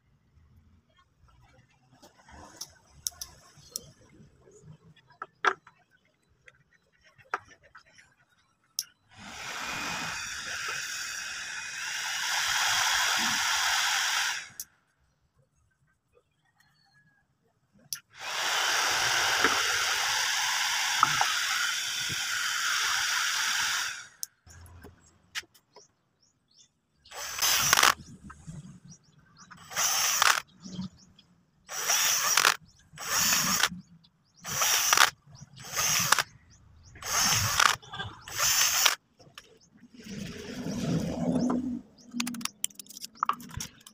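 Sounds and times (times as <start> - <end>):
electric drill boring plastic: 9.2 - 14.7, 17.9 - 24.4, 27.1 - 28.1, 29.6 - 30.5, 31.7 - 33.8, 34.4 - 36.3, 37.0 - 39.0
steady whirring: 9.2 - 14.7, 17.9 - 25.1, 27.1 - 39.0.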